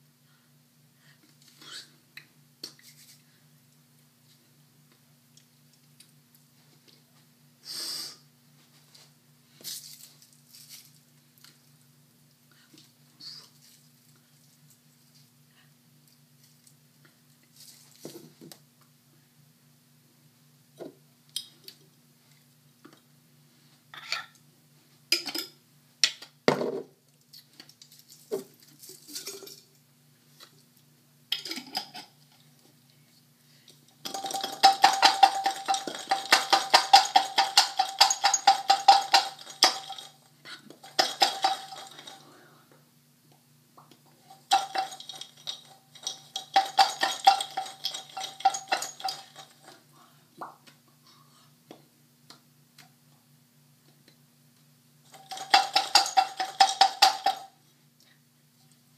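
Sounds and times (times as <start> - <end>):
garlic rattling in a glass jar: 34.0 - 42.2, 44.3 - 49.8, 55.1 - 57.5.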